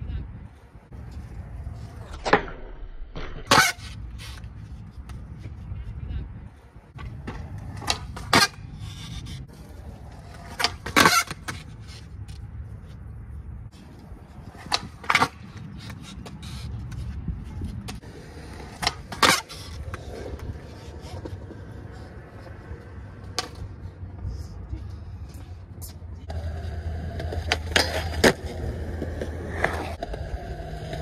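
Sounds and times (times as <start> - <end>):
skateboard wheels rolling on concrete: 0.2 - 31.0
skateboard cracks: 10.1 - 12.4, 17.9 - 21.6.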